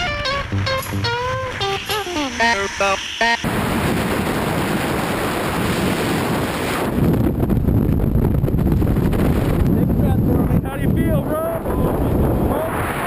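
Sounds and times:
wind roaring over microphone: 0:03.4 - 0:13.0.

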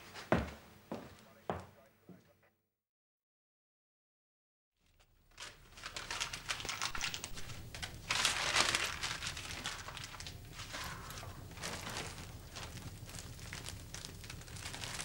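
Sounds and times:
kindling crackling: 0:04.8 - 0:15.0
paper crumpling: 0:04.8 - 0:15.0.

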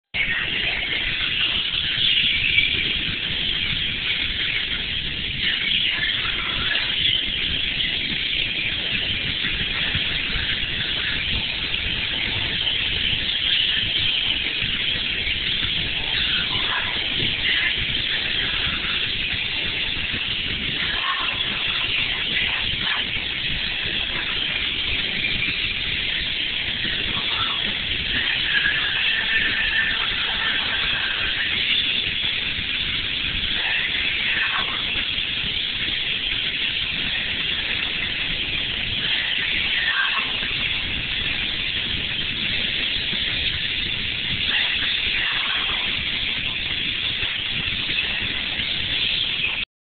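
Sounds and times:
constant hiss: 0:00.2 - 0:49.6
water spraying against car body: 0:20.8 - 0:21.9, 0:39.1 - 0:40.2.

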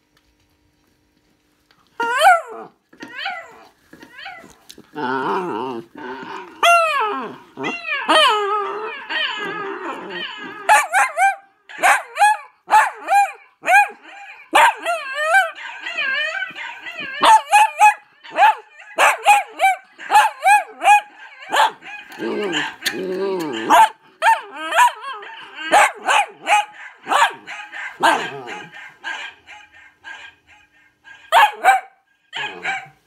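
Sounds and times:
dog barking and yipping: 0:02.0 - 0:03.6, 0:10.1 - 0:33.0
dog howling and whining: 0:02.0 - 0:31.8.

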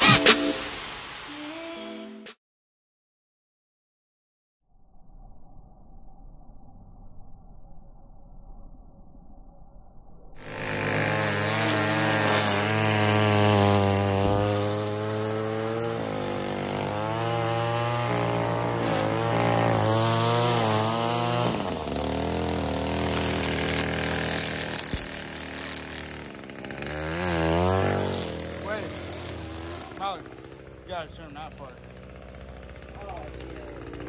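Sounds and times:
string trimmer engine revving: 0:10.4 - 0:34.0.

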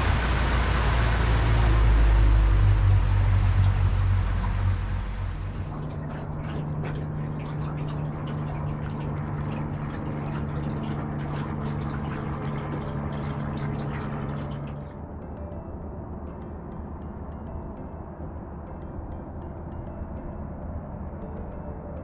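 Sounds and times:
boat running rush: 0:00.0 - 0:15.0
water lapping against boat hull: 0:00.0 - 0:15.0
steady low hum: 0:00.0 - 0:22.0.

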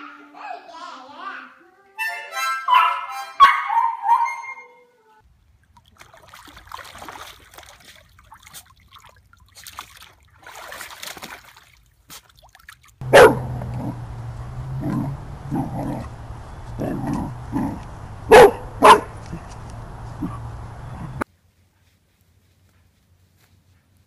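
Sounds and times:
harmonica: 0:02.0 - 0:03.6
dog barking: 0:02.7 - 0:04.7, 0:13.0 - 0:21.2
water sloshing: 0:05.4 - 0:21.2
puppy howling: 0:13.0 - 0:21.2
steady low hum: 0:13.0 - 0:21.2.

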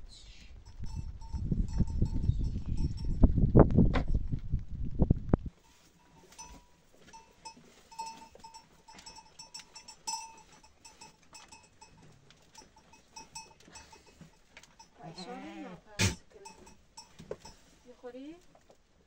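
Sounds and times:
small bell clinking: 0:00.6 - 0:03.3, 0:06.0 - 0:15.2, 0:16.3 - 0:17.7
goats moving about: 0:00.6 - 0:15.2, 0:15.8 - 0:19.0.

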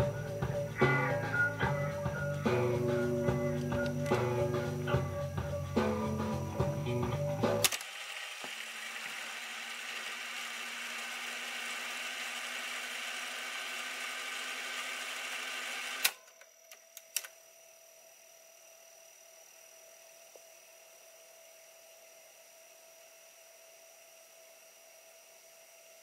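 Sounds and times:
tape mechanism whirring: 0:07.4 - 0:17.4
tape mechanism clicks: 0:07.5 - 0:08.7, 0:15.5 - 0:17.4.

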